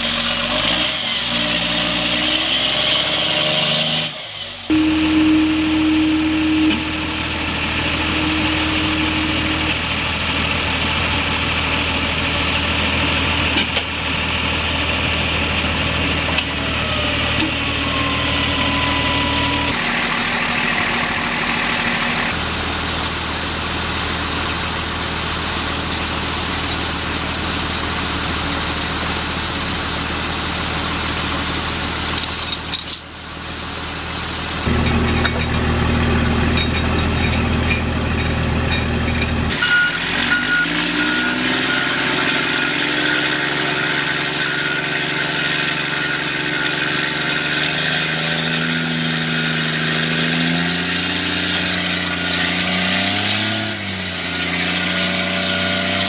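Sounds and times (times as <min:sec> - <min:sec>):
truck diesel engines droning: 0:00.0 - 0:56.0.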